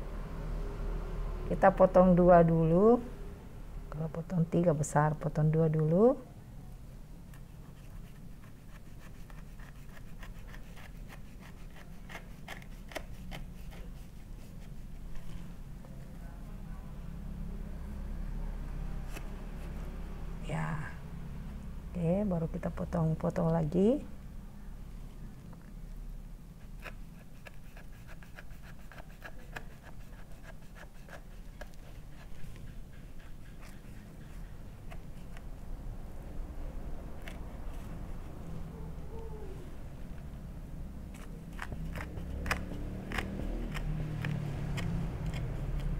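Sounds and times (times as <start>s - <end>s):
knife sawing onto cutting board: 8.5s - 14.1s, 26.8s - 32.4s.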